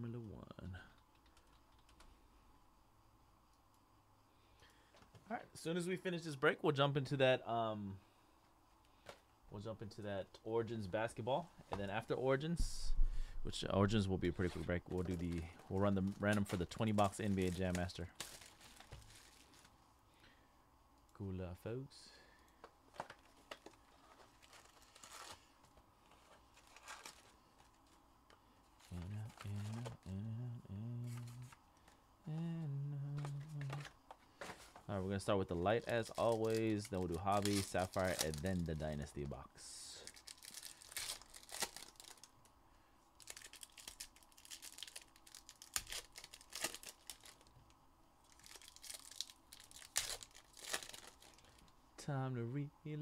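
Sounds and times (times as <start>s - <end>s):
foil wrappers tearing and crinkling: 14.5s - 19.7s, 22.9s - 28.0s, 28.8s - 30.0s, 35.6s - 39.0s, 40.0s - 42.4s, 43.2s - 47.5s, 48.2s - 51.7s.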